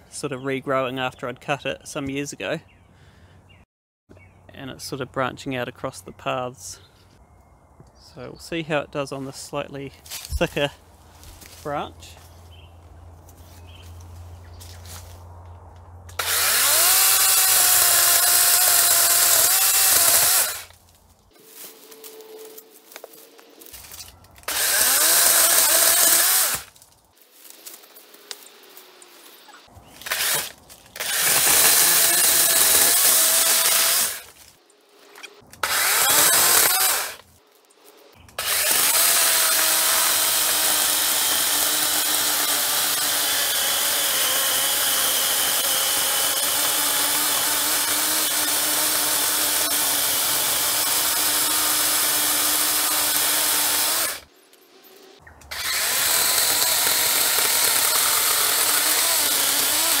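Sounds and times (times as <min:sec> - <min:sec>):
electric chainsaw cutting branch: 0:16.1 - 0:20.8, 0:22.9 - 0:26.8, 0:27.6 - 0:34.4, 0:35.2 - 0:37.2, 0:38.4 - 0:54.3, 0:55.5 - 1:00.0.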